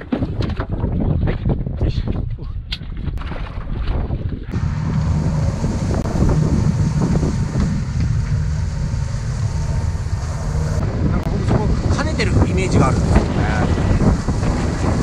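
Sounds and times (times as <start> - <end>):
wind buffeting microphone: 0.0 - 15.0
low hum: 4.5 - 15.0.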